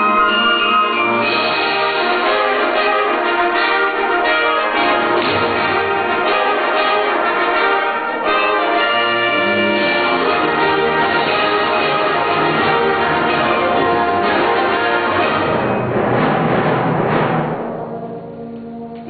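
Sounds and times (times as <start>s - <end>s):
ringing bell tones: 0.0s - 1.7s
band playing wind chords: 0.0s - 19.0s.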